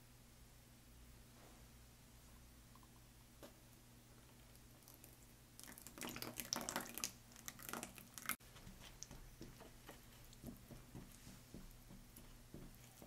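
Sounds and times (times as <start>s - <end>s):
yogurt plopping into a bowl: 5.6s - 8.4s.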